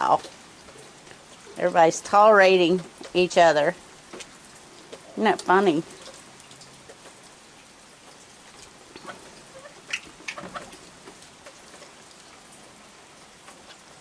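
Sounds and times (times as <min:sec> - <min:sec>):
light rain falling: 0:00.0 - 0:14.0
raccoons squeaking and clicking: 0:08.6 - 0:12.0.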